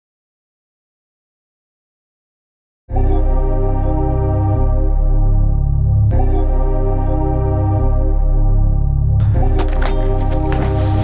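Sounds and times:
instrumental music with heavy bass: 0:02.9 - 0:11.0.

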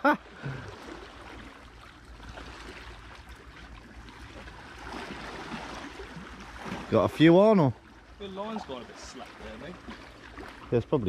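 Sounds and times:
surf washing against rocks: 0:05.0 - 0:10.1.

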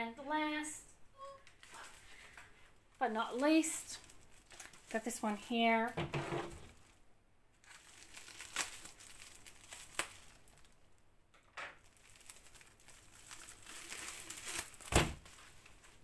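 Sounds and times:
plastic mailer crinkling: 0:03.3 - 0:05.5, 0:07.6 - 0:10.8, 0:11.8 - 0:16.0.

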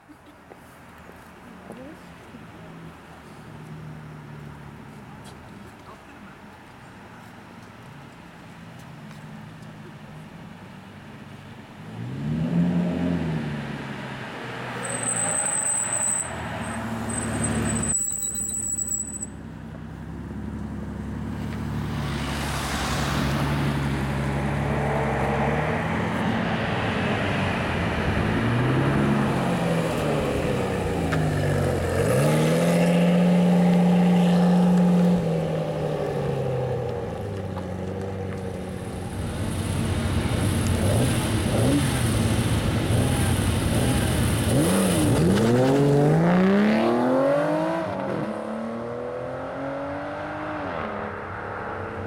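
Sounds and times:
sports car engines accelerating: 0:19.6 - 0:52.0.

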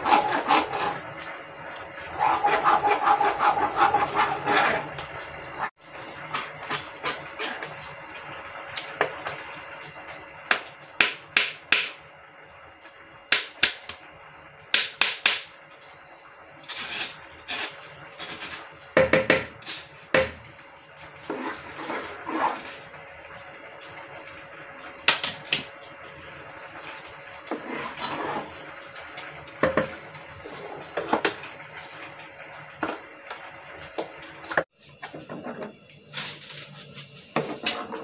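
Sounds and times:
wooden spoon scraping plastic sieve: 0:00.0 - 0:01.0, 0:02.1 - 0:05.0, 0:21.2 - 0:22.7, 0:27.5 - 0:28.6.

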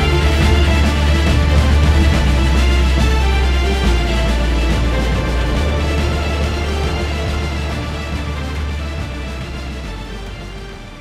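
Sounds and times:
theme music with strong bass: 0:00.0 - 0:11.0.

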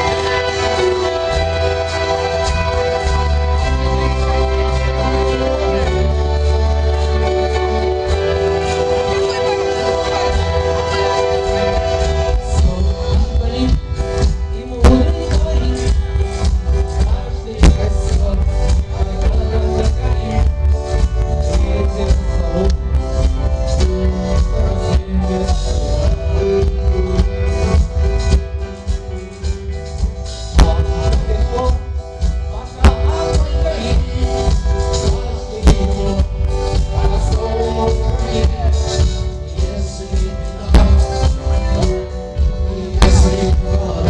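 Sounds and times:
bass guitar: 0:00.0 - 0:44.0
drum kit: 0:00.0 - 0:44.0
electric guitar: 0:00.0 - 0:44.0
keyboard chords: 0:00.0 - 0:44.0.

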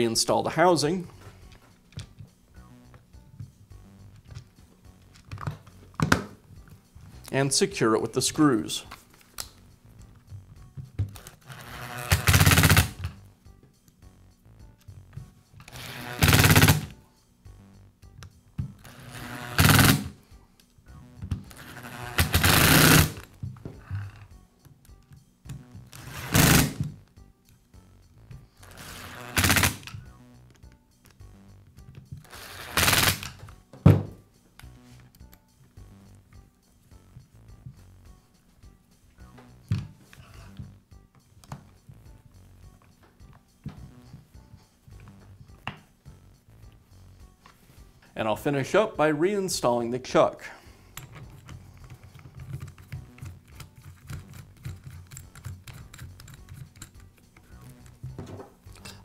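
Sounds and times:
screwdriver rattling bursts: 0:15.8 - 0:16.9, 0:51.0 - 0:58.0
drill chuck clicking and rubbing: 0:50.9 - 0:58.0.

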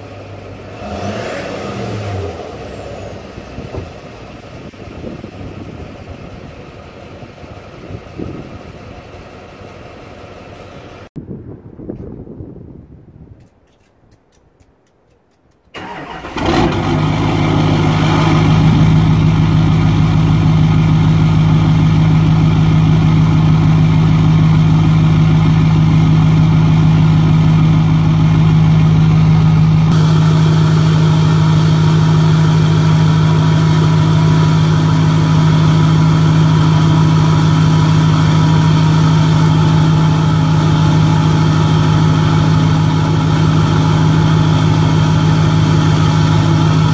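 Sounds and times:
diesel engine starting: 0:00.0 - 0:11.2, 0:15.7 - 0:46.9
loud diesel engine idle: 0:15.8 - 0:46.9.

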